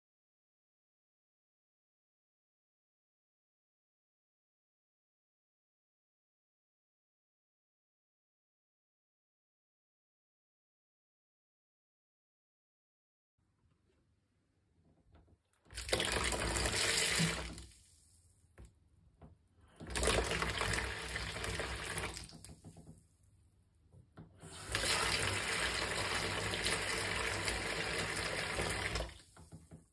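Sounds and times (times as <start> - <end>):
water running into plastic bowl: 15.6 - 18.0, 19.7 - 23.0, 24.4 - 29.9.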